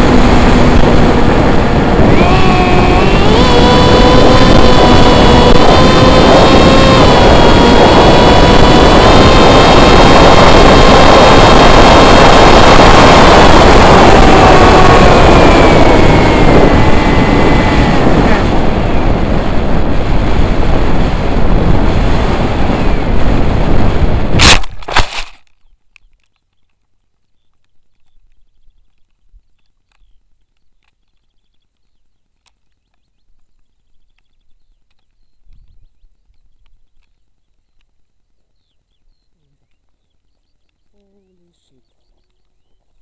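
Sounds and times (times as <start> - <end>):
electric motor and propeller whine: 0.0 - 25.4
wind rush: 0.0 - 25.4.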